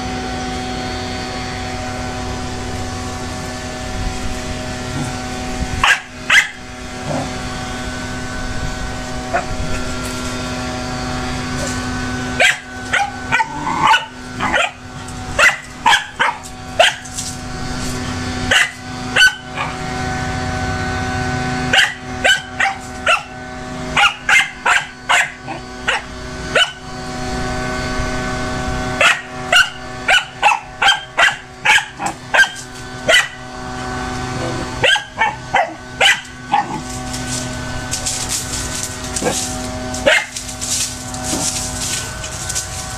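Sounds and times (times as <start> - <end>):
steady hum: 0.0 - 42.9
small dog barking: 5.8 - 7.3, 12.4 - 17.2, 18.5 - 19.8, 21.7 - 26.8, 29.0 - 33.4, 34.8 - 36.9, 39.2 - 40.4.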